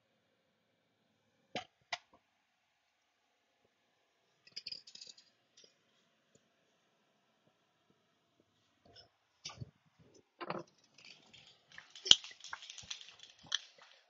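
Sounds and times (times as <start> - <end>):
small hard objects clicking and rattling: 4.4 - 5.8, 10.4 - 14.0.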